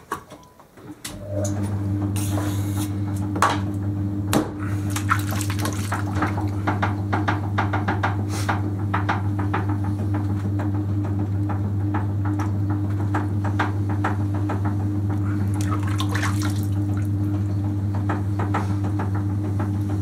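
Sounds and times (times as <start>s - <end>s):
potter's wheel motor humming: 1.1s - 20.0s
wet clay squelching and slapping: 4.8s - 6.7s, 15.3s - 17.1s.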